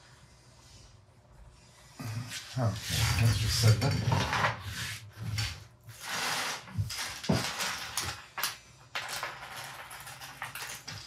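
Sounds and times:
plastic pieces rustling: 0:06.4 - 0:11.0.

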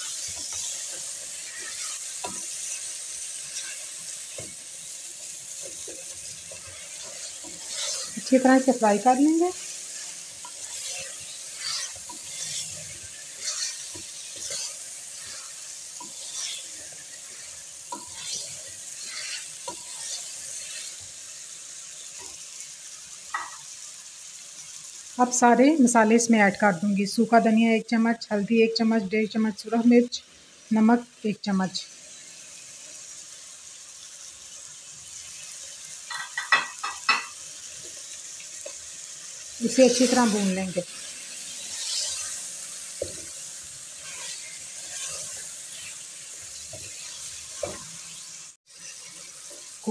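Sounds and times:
meat sizzling in oil: 0:00.0 - 0:49.9
wooden spoon scraping pot: 0:05.7 - 0:09.6, 0:10.4 - 0:16.8.

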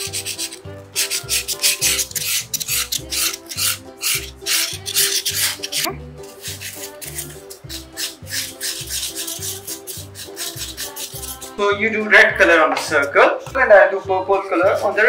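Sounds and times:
markers scribbling on foam: 0:00.0 - 0:11.6
background music with steady beat: 0:00.0 - 0:15.0.

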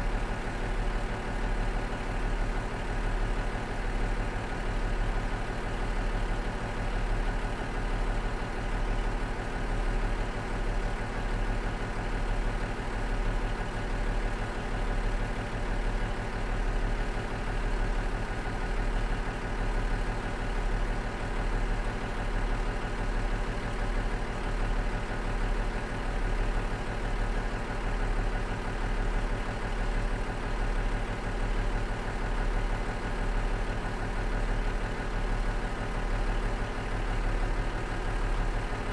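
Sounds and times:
diesel engine idling: 0:00.0 - 0:38.9.

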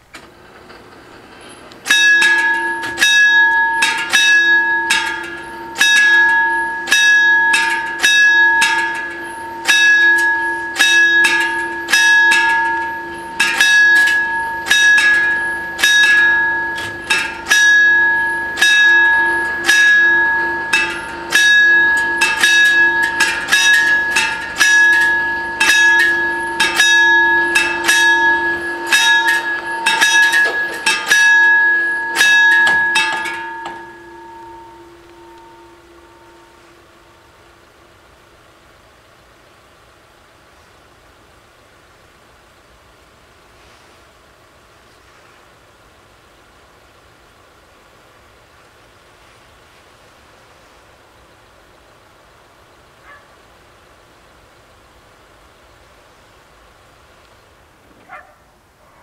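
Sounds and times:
level crossing warning bells: 0:00.3 - 0:43.4.

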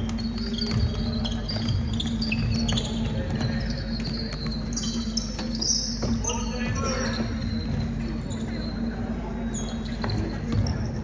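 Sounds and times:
basketball dribbling thuds: 0:00.0 - 0:08.0
shoe squeaks: 0:00.0 - 0:11.0.

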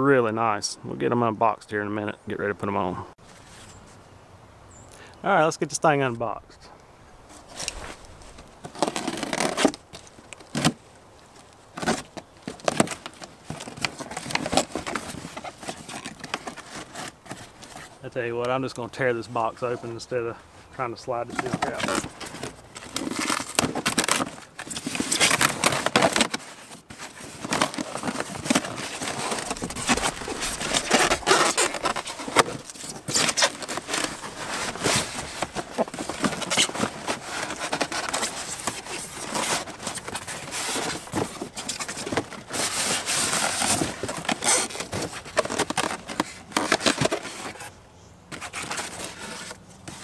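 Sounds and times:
styrofoam packing handled: 0:07.4 - 0:18.1, 0:21.1 - 0:50.0
cardboard box ripping: 0:08.6 - 0:10.8, 0:11.7 - 0:17.9, 0:21.4 - 0:47.7.

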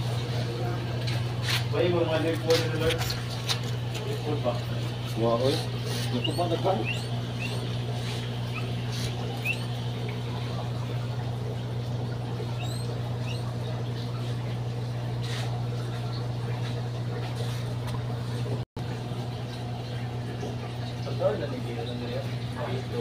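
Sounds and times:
aquarium pump humming: 0:00.0 - 0:23.0
high-pitched chirps: 0:06.2 - 0:07.7, 0:09.4 - 0:09.8, 0:12.5 - 0:13.5.

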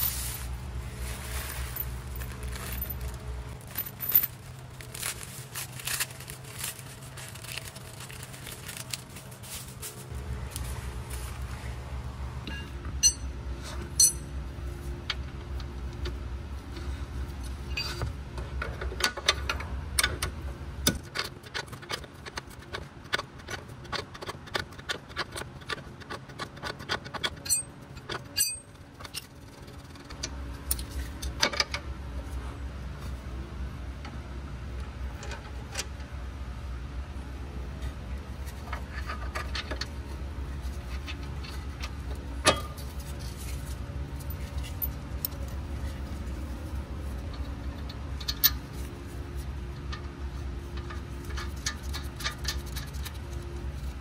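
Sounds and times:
steady low hum: 0:00.0 - 0:54.0
metal tools clinking: 0:01.2 - 0:07.5, 0:12.5 - 0:13.3, 0:13.9 - 0:14.3, 0:27.4 - 0:29.3.

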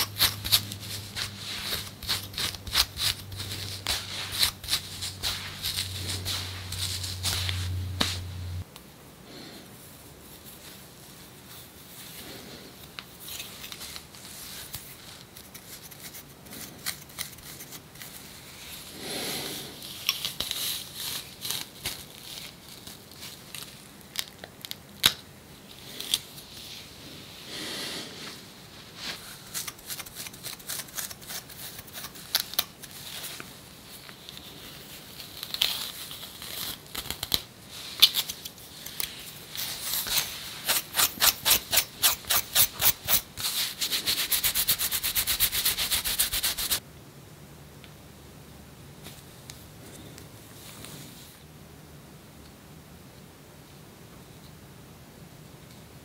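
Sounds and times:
scratching dry skin: 0:00.0 - 0:08.6, 0:10.2 - 0:24.4, 0:28.2 - 0:46.8.

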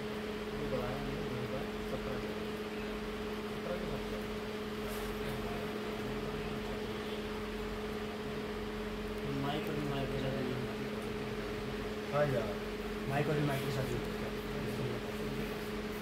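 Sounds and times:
steady mechanical hum: 0:00.0 - 0:16.0.

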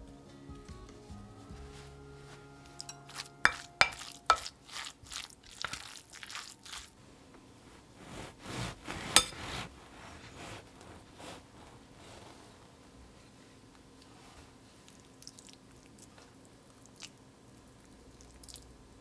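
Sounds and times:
stirring and scraping in bowl: 0:02.6 - 0:06.9, 0:08.0 - 0:12.2
utensil clinking against bowl: 0:02.8 - 0:04.6.

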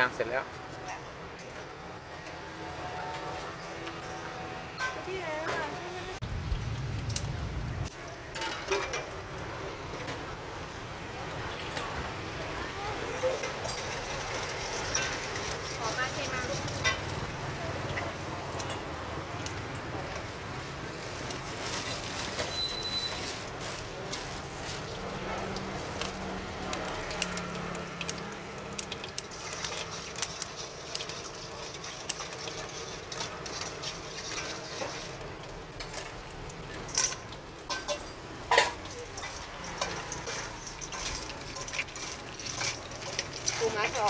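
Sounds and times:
utensils clinking on metal bowls: 0:08.2 - 0:09.2, 0:13.0 - 0:19.6, 0:21.0 - 0:44.0.

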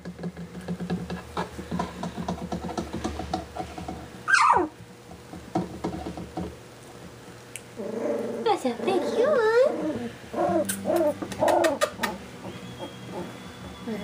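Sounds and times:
puppies squeaking and grunting: 0:04.2 - 0:04.8, 0:07.8 - 0:14.0
puppy yelping: 0:04.3 - 0:04.8, 0:08.9 - 0:13.9.

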